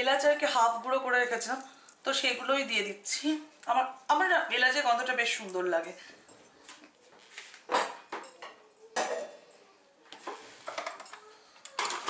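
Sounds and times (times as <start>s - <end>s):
dishes and utensils clinking: 7.7s - 9.6s, 10.2s - 12.0s.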